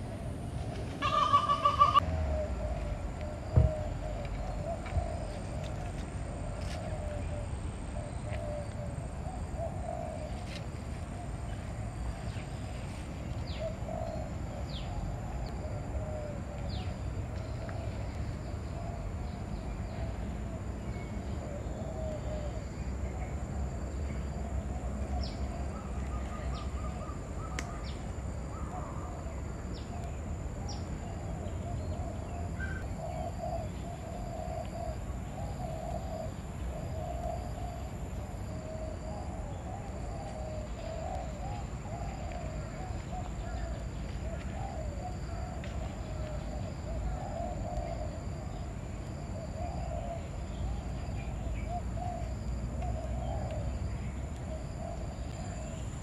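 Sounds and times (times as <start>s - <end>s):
birds calling: 0.9s - 12.7s.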